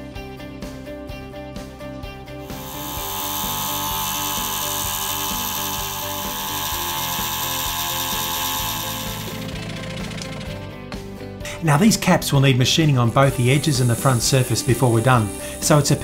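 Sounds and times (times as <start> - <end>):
background music: 0.0 - 16.0
scroll saw cutting metal: 2.4 - 10.6, 13.2 - 16.0.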